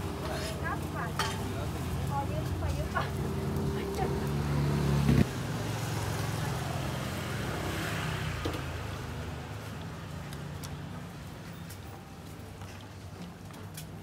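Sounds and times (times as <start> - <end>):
vehicle engine humming: 0.0 - 9.9
street background noise: 0.0 - 14.0.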